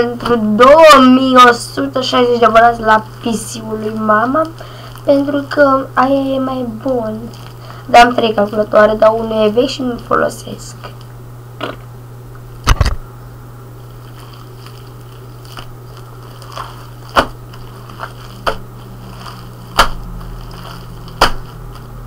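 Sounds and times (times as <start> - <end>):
steady low hum: 0.0 - 22.0
slime popping and slapping: 14.1 - 21.9.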